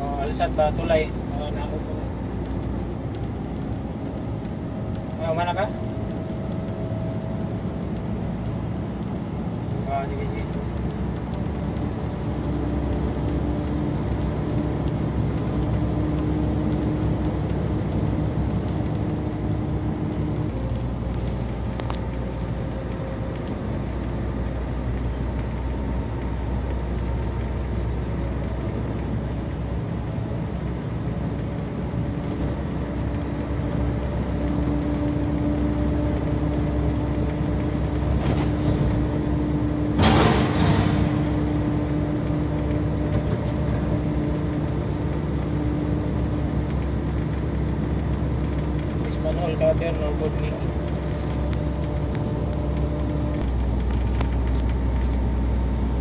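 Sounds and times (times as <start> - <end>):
heavy vehicle engine hum: 0.0 - 56.0
road noise rumble: 0.0 - 56.0
rush of noise: 40.0 - 42.9.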